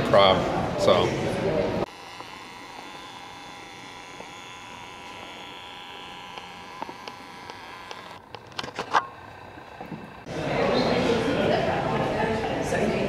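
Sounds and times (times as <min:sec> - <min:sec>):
mechanical hum: 0:00.0 - 0:13.0
faint steady tones: 0:01.8 - 0:11.2.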